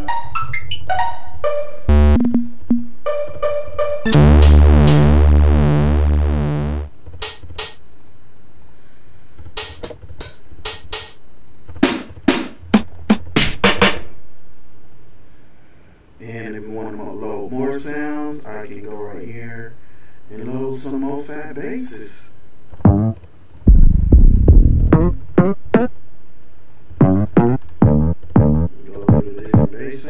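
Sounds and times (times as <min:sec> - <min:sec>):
short synth notes: 0:00.0 - 0:06.9, 0:22.8 - 0:26.0, 0:27.0 - 0:29.7
loud pulsing synth chord: 0:01.4 - 0:06.9
sharp drum machine hits: 0:01.9 - 0:07.8, 0:09.6 - 0:11.2, 0:11.8 - 0:14.1, 0:22.8 - 0:25.9, 0:27.0 - 0:29.8.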